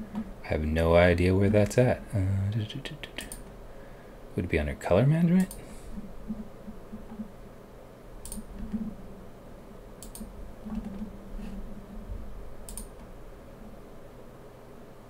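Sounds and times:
mouse and keyboard clicks: 0:08.2 - 0:08.8.

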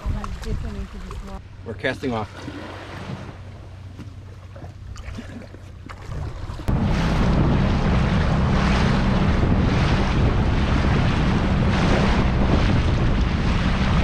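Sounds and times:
wind buffeting microphone: 0:00.0 - 0:01.4, 0:06.1 - 0:14.0
outboard motor running: 0:00.0 - 0:14.0
water rushing past hull: 0:00.0 - 0:14.0.

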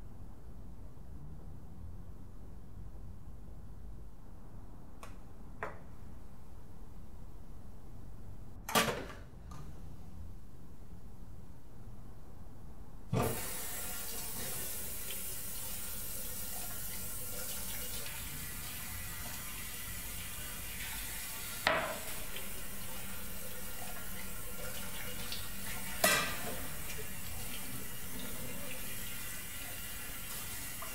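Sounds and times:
tap water running into sink: 0:13.2 - 0:30.9.

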